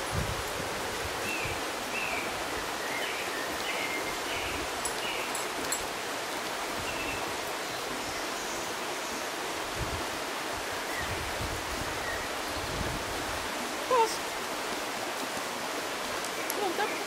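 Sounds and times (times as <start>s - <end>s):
river flowing: 0.0s - 17.0s.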